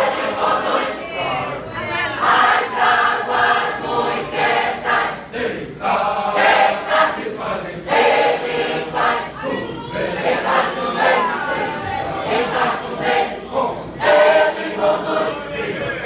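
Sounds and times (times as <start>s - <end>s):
mixed choir singing: 0.0s - 16.0s.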